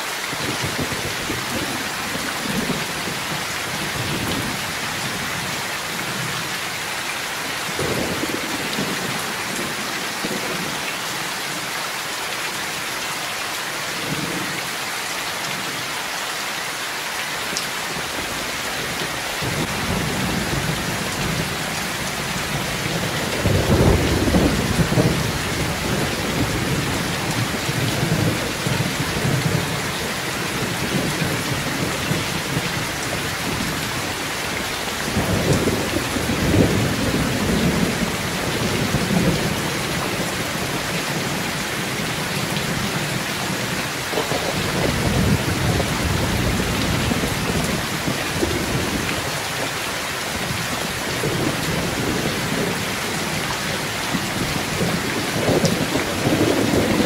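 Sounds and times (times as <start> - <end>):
heavy rain pouring: 0.0 - 57.0
thunder rumbling: 19.4 - 49.1, 50.4 - 57.0.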